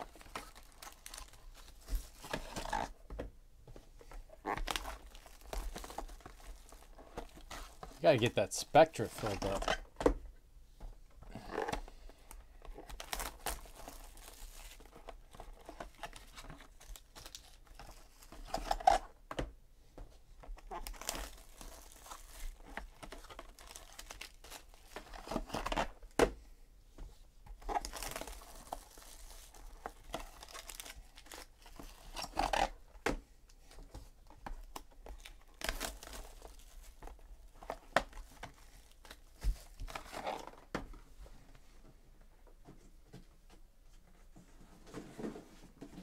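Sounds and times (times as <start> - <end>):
plastic wrap tearing and crinkling: 0.0 - 3.0, 4.4 - 8.0, 12.8 - 19.0, 20.7 - 26.0, 27.7 - 32.8, 34.6 - 40.6.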